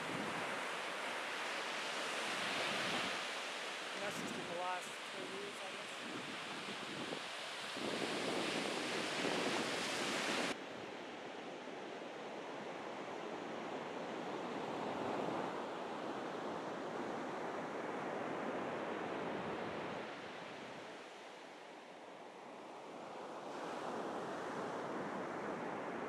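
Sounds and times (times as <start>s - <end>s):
wind buffeting microphone: 6.0s - 10.6s.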